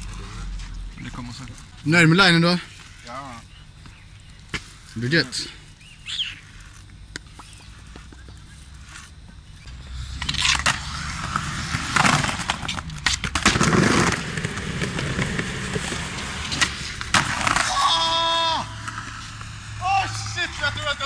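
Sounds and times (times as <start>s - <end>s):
skateboard wheels rolling on paving: 6.1s - 21.0s
person shouting: 17.6s - 18.9s, 19.8s - 21.0s.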